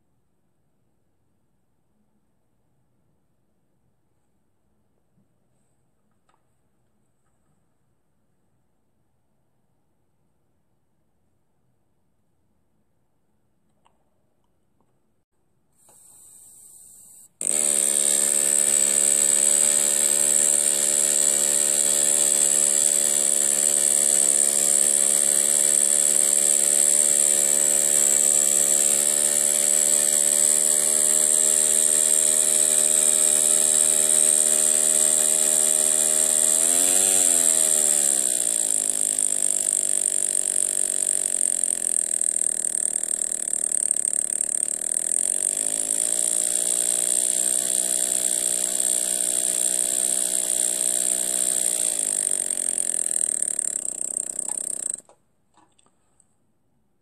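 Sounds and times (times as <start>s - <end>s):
air exhaust hissing: 15.8s - 28.6s
steam engine buzzing hum: 15.9s - 55.0s.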